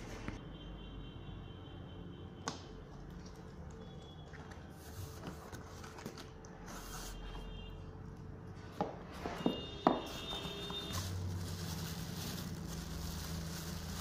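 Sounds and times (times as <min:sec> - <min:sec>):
cardboard and plastic rustling: 0:04.3 - 0:07.2, 0:09.1 - 0:14.0.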